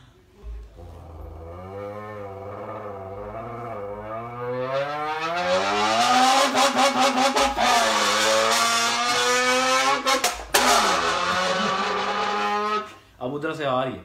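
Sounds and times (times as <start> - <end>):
man imitating revving engine: 0.8 - 12.9.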